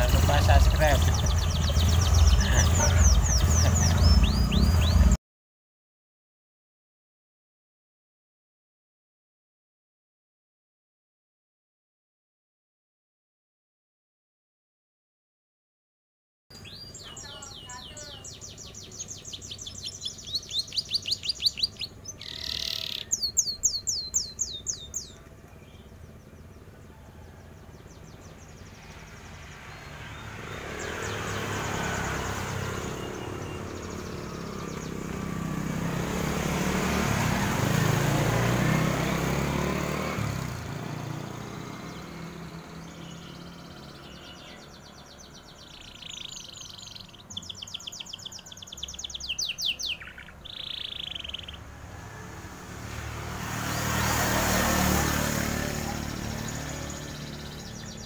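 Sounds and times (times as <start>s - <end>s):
canary singing trills: 0.0s - 5.2s, 16.5s - 51.8s, 53.7s - 58.0s
passing vehicle rumble: 0.0s - 5.2s, 16.6s - 58.0s.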